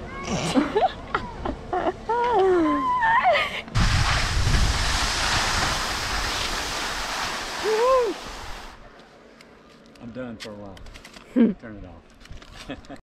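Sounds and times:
girl laughing: 0.2s - 3.7s
skis sliding on snow: 3.8s - 8.8s
wind on microphone: 3.8s - 8.8s.

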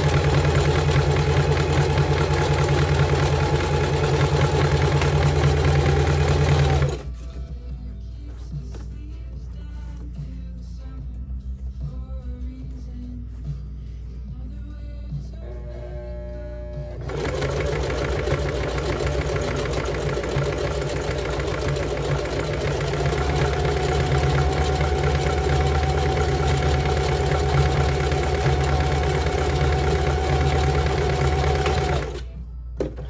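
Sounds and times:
sewing machine stitching: 0.0s - 7.1s, 17.0s - 32.3s.

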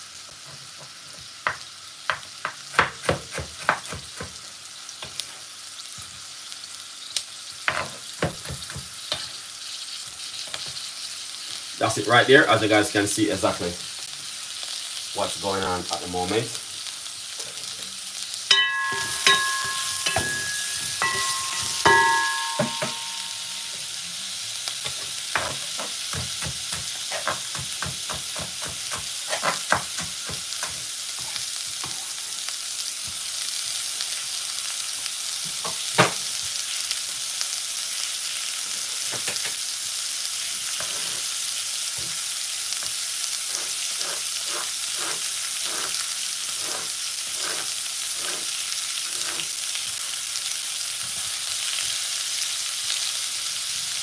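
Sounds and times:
vegetables sizzling in a pot: 0.0s - 54.0s
metal clinks from stirring: 18.5s - 23.8s.

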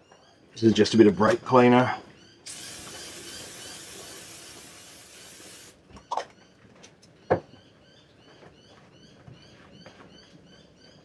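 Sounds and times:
aerosol can spraying: 2.5s - 5.8s.

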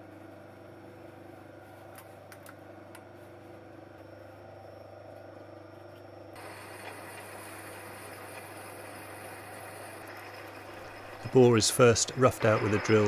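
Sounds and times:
drill boring into steel: 6.4s - 13.0s
lathe humming: 6.4s - 13.0s.

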